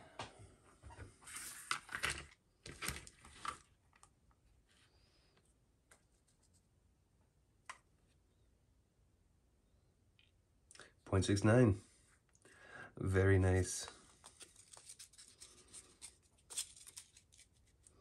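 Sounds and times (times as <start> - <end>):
paper rustling on cutting mat: 1.2 - 3.7, 14.2 - 18.0.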